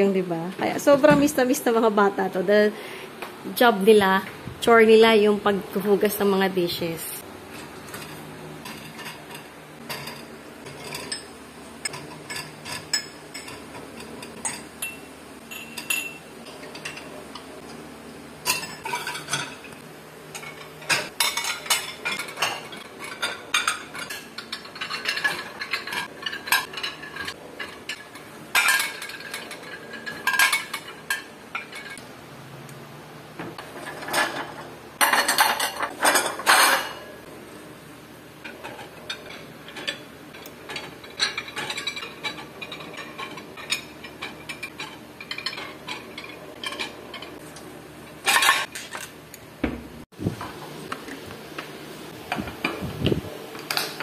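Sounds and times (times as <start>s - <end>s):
ceramic dishes clattering: 7.9s - 11.3s, 18.4s - 19.7s, 20.4s - 32.0s, 40.7s - 47.3s, 48.2s - 49.1s.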